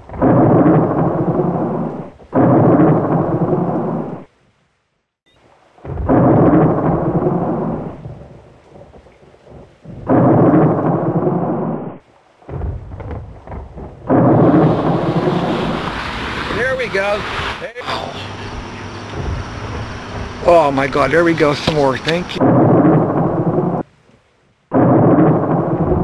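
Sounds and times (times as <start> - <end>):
thunder claps rumbling: 0.0 - 4.2, 5.8 - 17.6, 18.3 - 23.9, 24.7 - 26.0.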